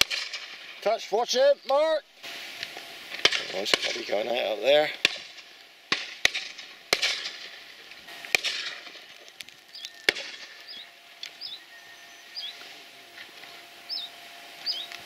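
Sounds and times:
shotgun shots: 0:00.0 - 0:00.8, 0:03.1 - 0:09.1, 0:10.1 - 0:10.6
short high chirping calls: 0:09.7 - 0:12.7, 0:13.8 - 0:15.0.

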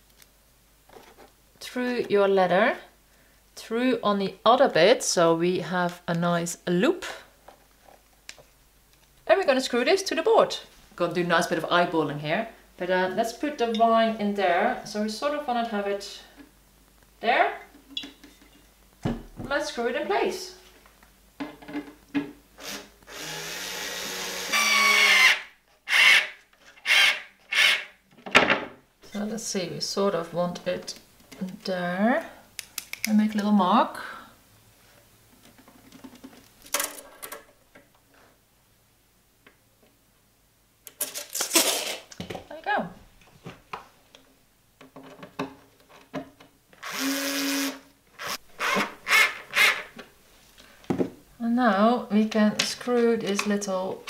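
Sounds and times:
cordless screwdriver motor: 0:22.6 - 0:27.8, 0:46.8 - 0:49.8.

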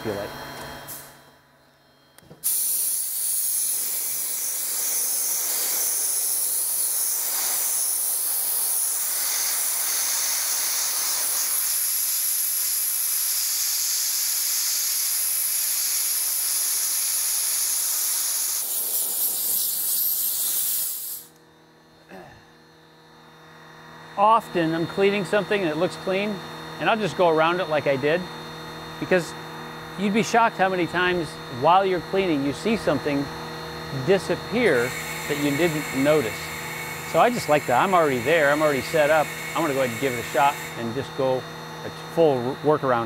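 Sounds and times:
dry ice blasting gun hissing: 0:02.4 - 0:21.4, 0:34.0 - 0:42.5.

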